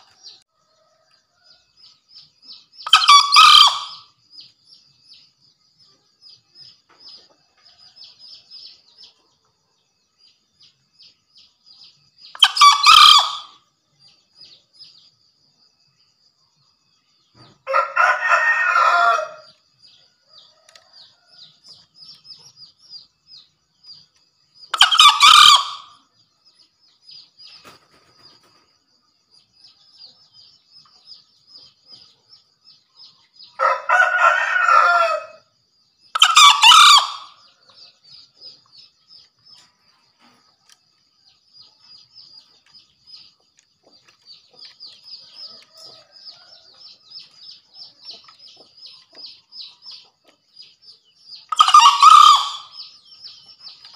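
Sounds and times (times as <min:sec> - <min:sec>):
faint high-pitched chirping: 0:00.0 - 0:53.9
junglefowl crowing: 0:02.8 - 0:04.1, 0:12.4 - 0:13.6, 0:17.7 - 0:19.5, 0:24.7 - 0:26.0, 0:33.6 - 0:35.4, 0:36.1 - 0:37.4, 0:51.5 - 0:52.8.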